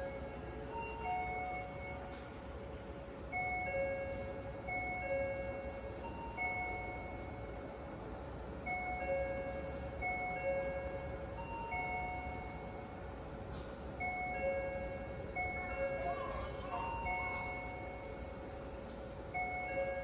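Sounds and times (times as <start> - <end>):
two-note electronic warning chime: 0.0 - 2.3, 14.0 - 18.4, 19.4 - 20.0.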